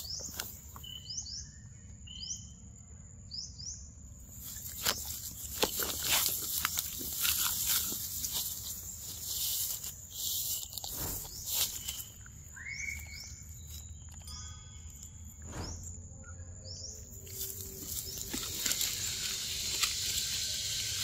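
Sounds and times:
rustling grass and leaves: 0.0s - 1.0s, 4.2s - 14.4s, 17.0s - 21.0s
outro jingle of chiming tones: 13.6s - 15.4s.

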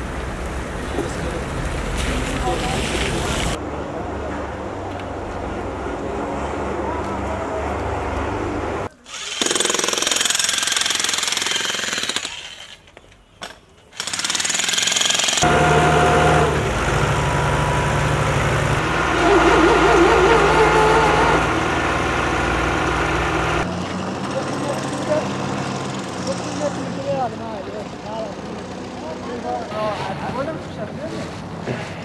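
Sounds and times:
jackhammer breaking concrete: 9.2s - 12.6s, 14.0s - 17.3s
diesel tractor engine running: 15.4s - 25.9s, 27.1s - 29.7s.

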